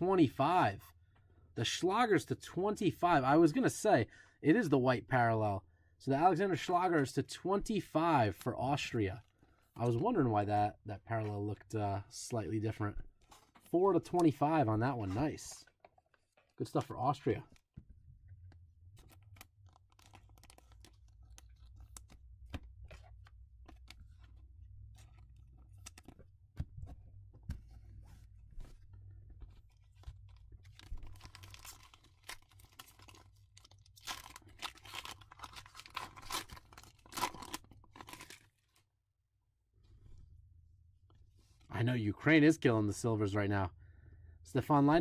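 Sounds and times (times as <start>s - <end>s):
cards and plastic sleeve rustling: 13.1s - 38.8s
foil wrapper crinkling: 19.0s - 22.4s, 29.9s - 38.8s.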